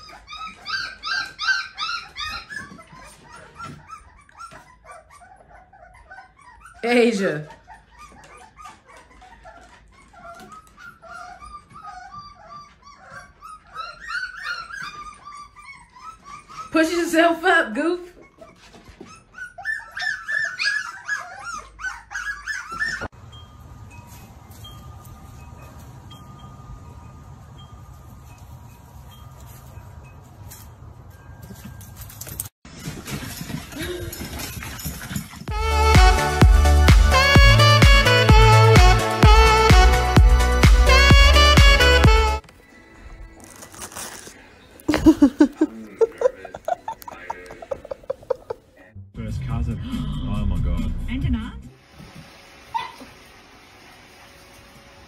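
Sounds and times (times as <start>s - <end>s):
puppies whimpering and squeaking: 0.0s - 48.8s, 52.7s - 53.2s.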